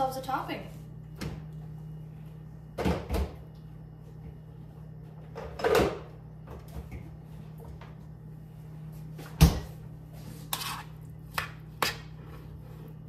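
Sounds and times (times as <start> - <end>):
steady low hum: 0.0 - 13.0
kitchen items knocking and clattering: 5.3 - 7.0.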